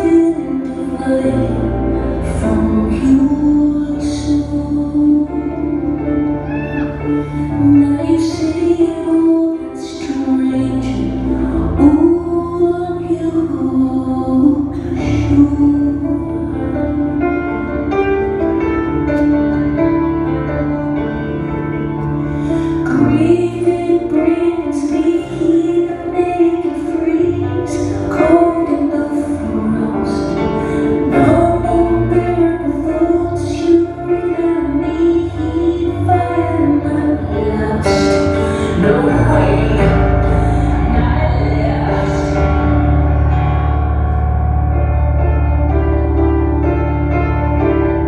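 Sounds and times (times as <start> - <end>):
woman singing: 0.0 - 17.6, 22.6 - 42.9
grand piano chords: 0.0 - 48.0.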